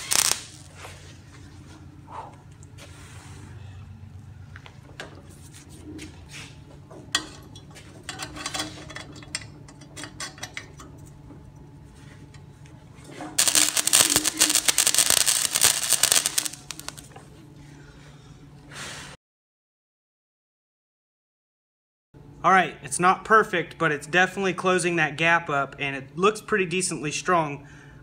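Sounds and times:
welder arc crackling: 0.0 - 0.8, 13.4 - 17.1.

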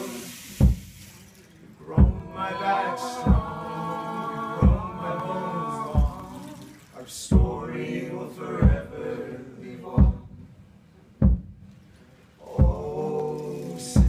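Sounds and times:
voices singing in harmony: 1.8 - 10.8, 12.4 - 14.0.

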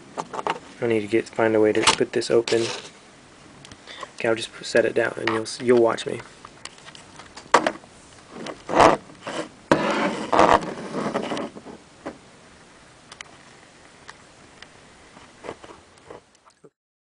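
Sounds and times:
scraping and rubbing: 2.4 - 3.0, 8.2 - 11.8, 15.2 - 16.3.

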